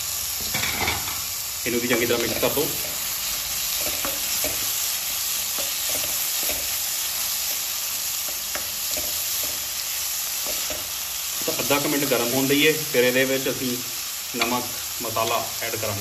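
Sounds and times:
vegetables sizzling in hot oil: 0:00.0 - 0:16.0
spatula scraping and tapping pan: 0:03.7 - 0:04.8, 0:05.5 - 0:06.9, 0:08.2 - 0:09.7, 0:10.4 - 0:11.6.

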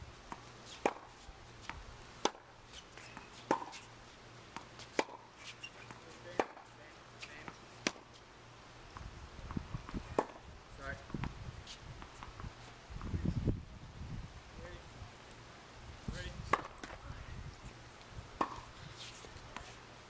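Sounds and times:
tennis racket hitting ball: 0:00.3 - 0:01.2, 0:02.2 - 0:02.5, 0:03.1 - 0:03.9, 0:04.5 - 0:05.3, 0:06.2 - 0:06.7, 0:10.1 - 0:10.4, 0:16.5 - 0:17.0, 0:18.4 - 0:19.7.

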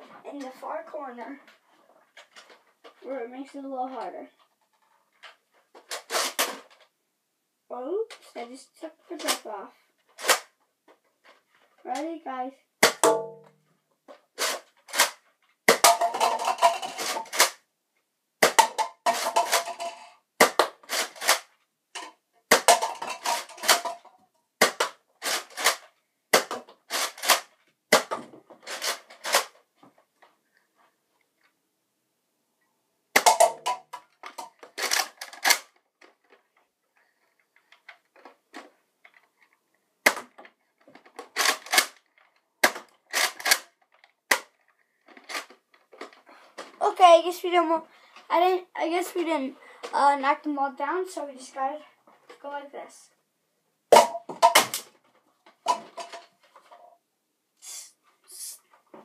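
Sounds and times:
toy blaster plastic clacks: 0:10.2 - 0:10.5, 0:14.4 - 0:17.6, 0:18.4 - 0:29.6, 0:33.2 - 0:36.4, 0:40.1 - 0:46.2
plastic cups clattering: 0:14.2 - 0:17.6, 0:18.4 - 0:29.6, 0:33.2 - 0:39.4, 0:40.0 - 0:46.9, 0:53.9 - 0:56.9.

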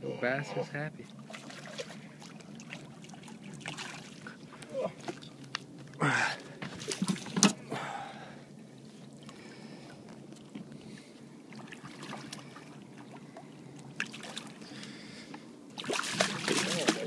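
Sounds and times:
fish thrashing in water: 0:15.8 - 0:17.0.

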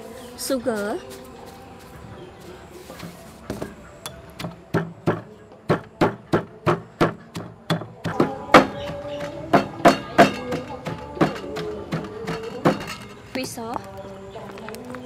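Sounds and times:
pestle pounding in stone mortar: 0:03.5 - 0:13.6.

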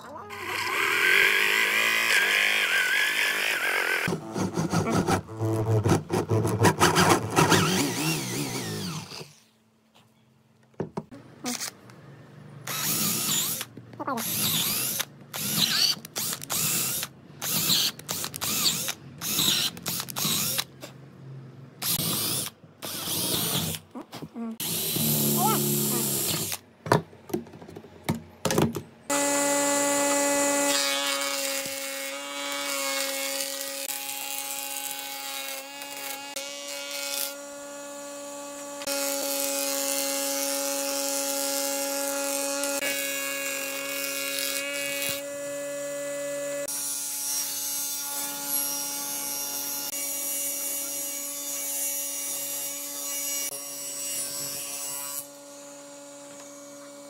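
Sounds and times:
wood planer feeding a board: 0:00.3 - 0:09.3
woodworking machinery motor whine: 0:54.4 - 0:57.0.

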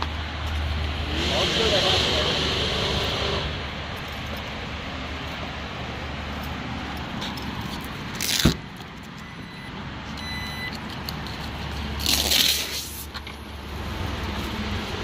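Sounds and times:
short electronic beeps: 0:09.2 - 0:10.8.

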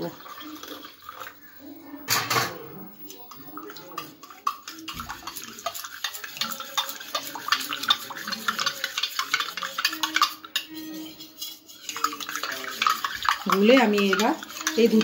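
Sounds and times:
metal spoon clinking in steel tumbler: 0:04.8 - 0:15.0.

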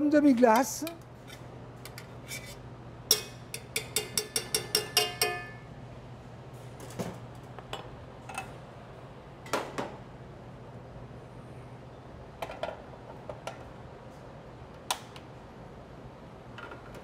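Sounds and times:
metal kitchenware clanking: 0:03.1 - 0:05.6
metal spoon clinking in container: 0:03.1 - 0:05.6.

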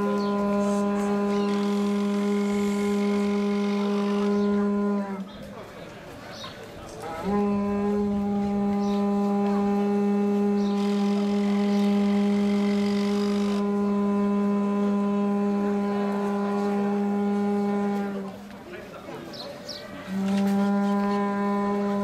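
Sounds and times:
conch shell trumpet low note: 0:00.0 - 0:05.3, 0:07.1 - 0:18.5, 0:20.0 - 0:22.0.

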